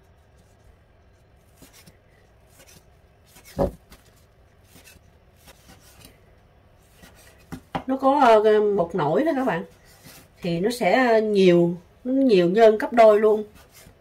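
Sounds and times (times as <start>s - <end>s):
knife slicing soft loaf: 1.4s - 4.0s.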